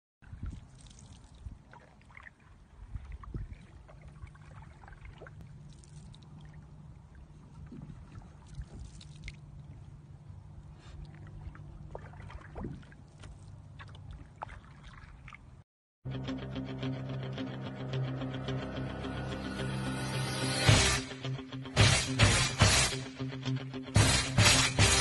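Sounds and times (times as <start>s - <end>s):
small splashes: 0.2s - 15.6s
water lapping beside hull: 0.2s - 15.6s
wooden paddle dipping: 0.2s - 15.6s.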